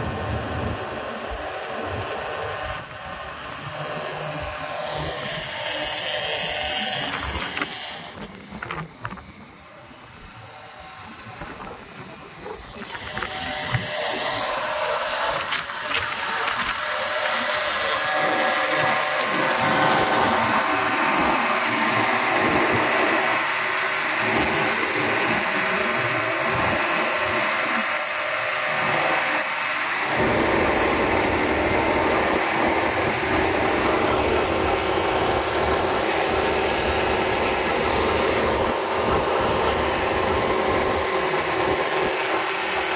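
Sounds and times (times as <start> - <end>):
diesel generator drone: 0.0 - 42.9.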